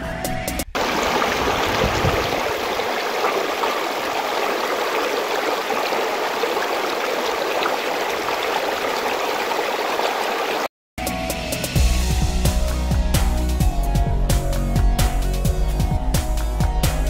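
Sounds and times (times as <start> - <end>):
stream rushing over rocks: 0.8 - 10.7.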